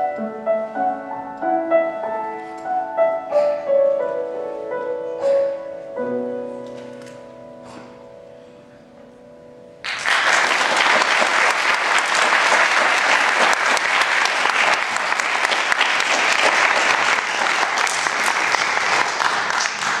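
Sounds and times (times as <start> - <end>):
piano notes: 0.0 - 20.0
audience applause: 9.8 - 20.0.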